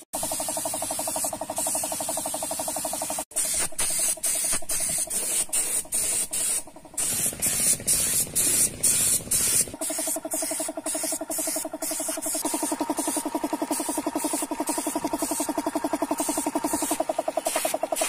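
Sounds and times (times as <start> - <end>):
paint spray gun hissing: 0.0 - 18.0
steady low hum: 4.2 - 18.0.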